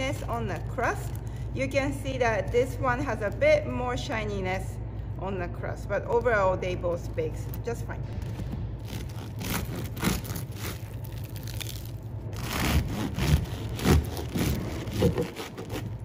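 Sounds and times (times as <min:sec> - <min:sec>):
bread knife sawing through crust: 0:08.9 - 0:10.9, 0:12.4 - 0:16.0.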